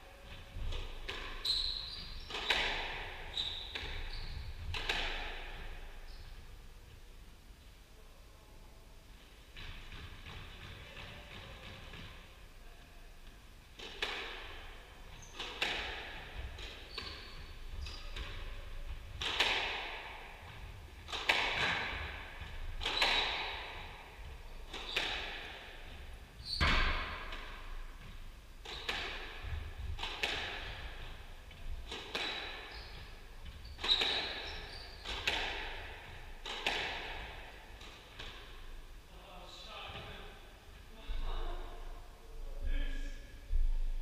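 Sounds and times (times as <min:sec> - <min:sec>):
shoes squeaking on wooden floor: 0:01.3 - 0:02.6, 0:03.2 - 0:04.8, 0:16.5 - 0:18.6, 0:26.4 - 0:26.7, 0:32.3 - 0:35.4
squash ball cracking off rackets: 0:19.1 - 0:23.9, 0:24.7 - 0:25.8, 0:28.6 - 0:31.3, 0:31.9 - 0:32.8, 0:35.0 - 0:38.6.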